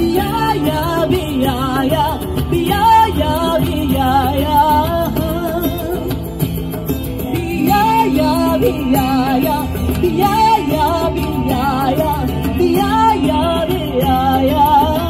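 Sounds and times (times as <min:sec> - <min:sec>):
woman singing into a microphone: 0:00.0 - 0:15.0.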